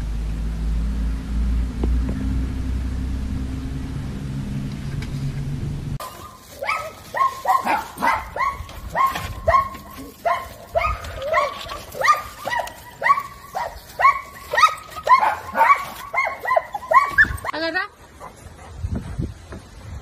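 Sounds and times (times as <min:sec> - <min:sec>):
low hum: 0:00.0 - 0:17.5
dog barking rapidly: 0:06.0 - 0:17.5.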